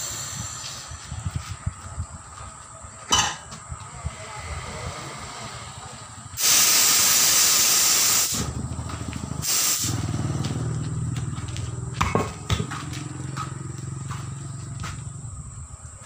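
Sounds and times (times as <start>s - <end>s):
compressed air hissing: 0.0s - 1.2s, 4.1s - 8.6s, 9.4s - 10.2s.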